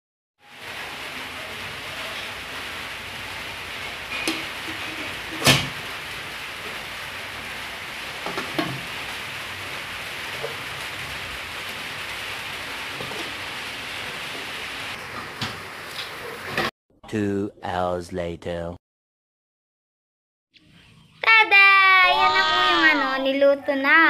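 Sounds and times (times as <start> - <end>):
metal cookware clank: 4.1 - 5.8
pot lids clinking: 4.1 - 5.8.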